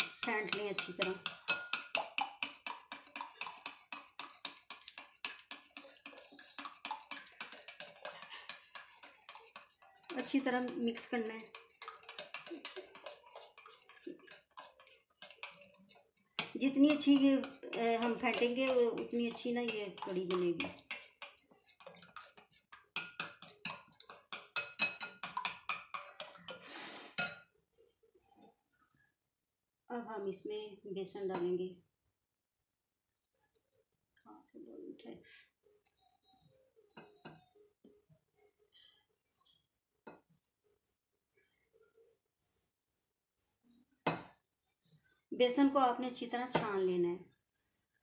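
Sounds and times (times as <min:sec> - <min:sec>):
spoon scraping bowl: 0:00.0 - 0:27.5.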